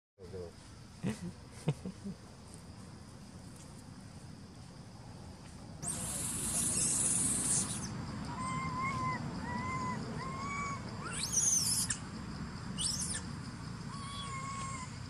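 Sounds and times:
high rising squeals: 5.8s - 12.0s
short whistling animal calls: 5.8s - 12.0s, 12.8s - 13.2s.

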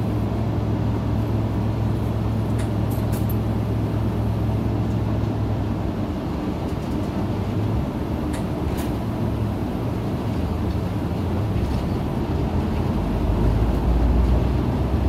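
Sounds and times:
bus engine drone from inside: 0.0s - 15.0s.

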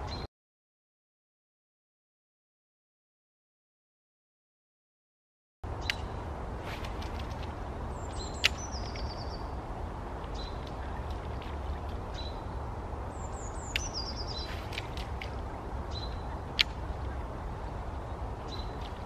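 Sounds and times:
low rumble of wind: 0.0s - 0.3s, 5.6s - 19.0s
songbird trilling: 8.0s - 9.5s, 13.1s - 14.8s.

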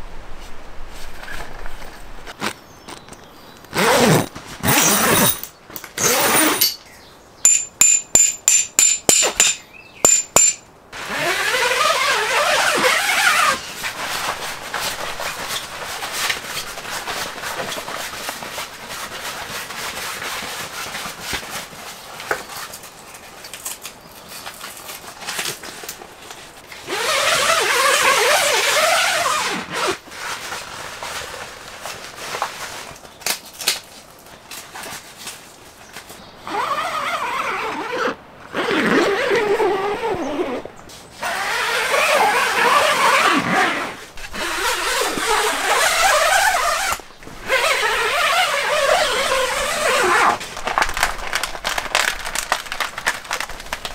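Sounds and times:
canvas rustling: 0.2s - 53.9s
zipper strokes: 3.7s - 5.4s, 6.0s - 6.8s, 10.4s - 21.3s, 26.8s - 31.4s, 36.4s - 50.4s
long rasping unzips: 3.7s - 6.8s, 10.4s - 16.4s, 26.8s - 30.0s, 36.4s - 50.4s.

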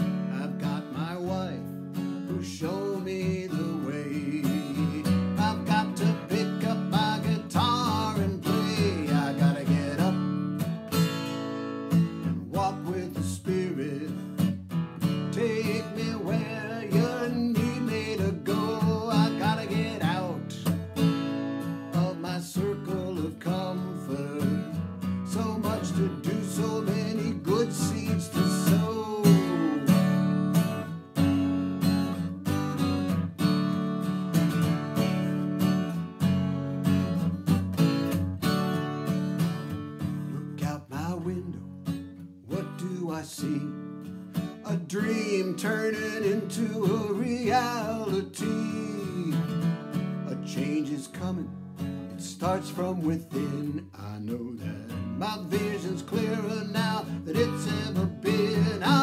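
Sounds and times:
man singing: 0.0s - 10.6s, 12.0s - 20.8s, 21.8s - 30.5s, 40.3s - 41.7s, 42.4s - 59.0s
acoustic guitar strumming: 0.0s - 59.0s.

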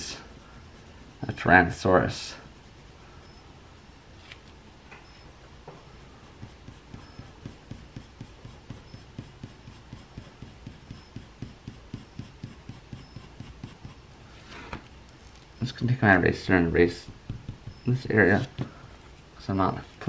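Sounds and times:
pencil shading on paper: 0.0s - 4.4s, 5.3s - 14.1s.

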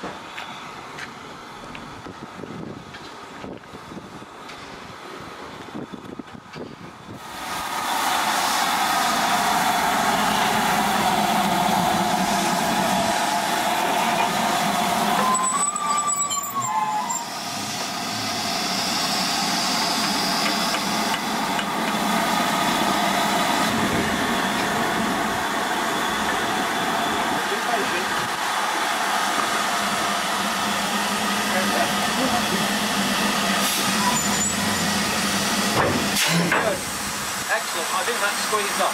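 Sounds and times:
steam hissing from locomotive: 7.1s - 15.6s, 16.8s - 38.9s.

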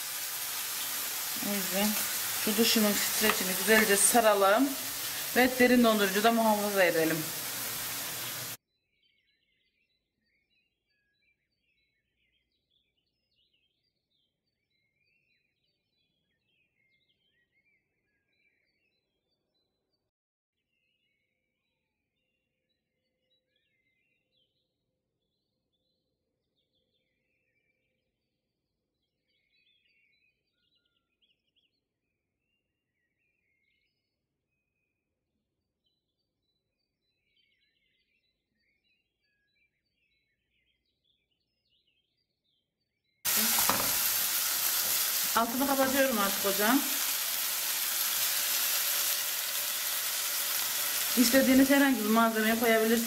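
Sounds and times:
faint birds chirping: 0.0s - 53.0s
bird chirping: 35.8s - 53.0s.

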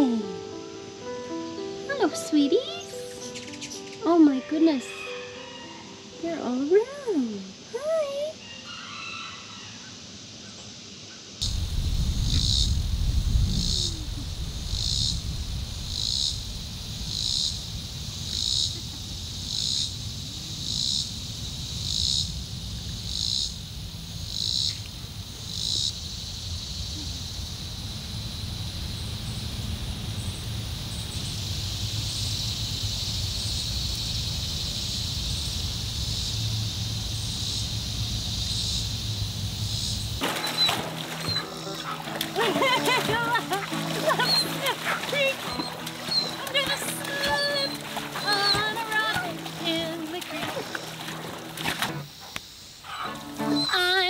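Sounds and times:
insect chorus shrill pulsing: 2.3s - 54.0s
low rumble: 11.4s - 40.2s.

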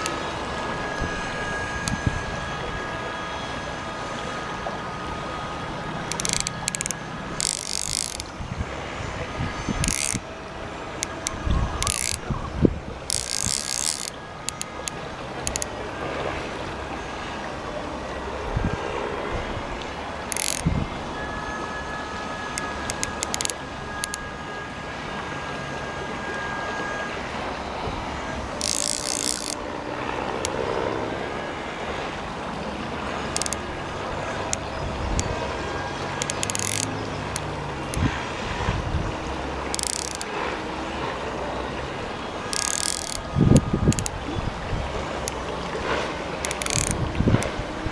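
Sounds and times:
fishing reel ratchet clicking: 0.0s - 0.3s, 6.0s - 8.4s, 9.7s - 10.3s, 10.9s - 12.4s, 13.0s - 15.7s, 20.2s - 20.7s, 22.5s - 24.2s, 28.5s - 29.6s, 33.3s - 33.8s, 34.4s - 35.4s, 36.0s - 38.1s, 39.7s - 40.3s, 42.5s - 44.3s, 45.0s - 45.7s, 46.4s - 47.6s
river water rushing: 27.1s - 47.9s.

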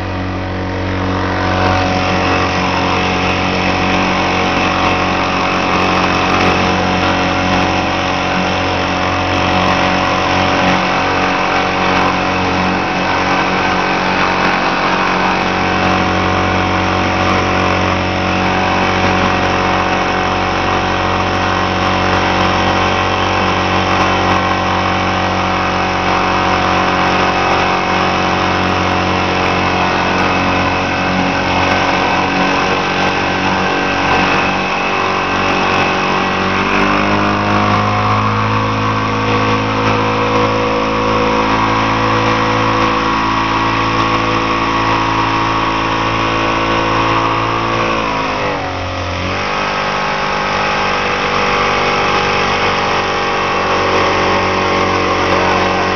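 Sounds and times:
churning boat wake: 0.0s - 55.9s
outboard motor running: 0.0s - 55.9s.

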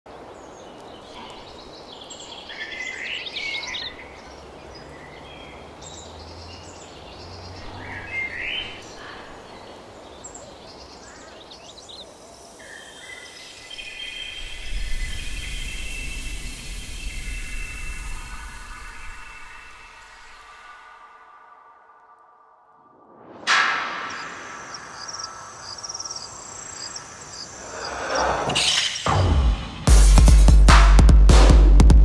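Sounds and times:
steady forest hiss: 0.1s - 30.1s
bird chirps: 0.7s - 21.0s, 24.1s - 29.2s.

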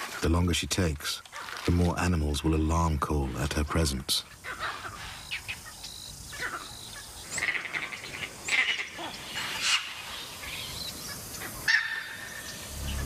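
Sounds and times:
birds chirping: 0.0s - 13.0s
animal alarm calls: 4.4s - 13.0s.

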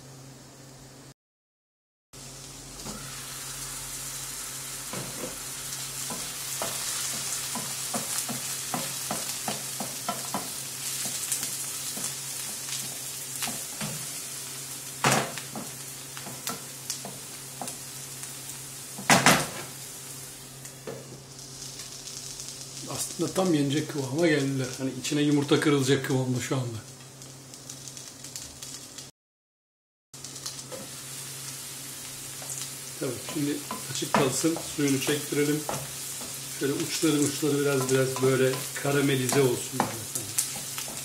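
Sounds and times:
vegetables sizzling in frying pan: 2.2s - 29.1s, 30.2s - 41.0s
wooden spoon stirring and scraping: 32.4s - 41.0s.

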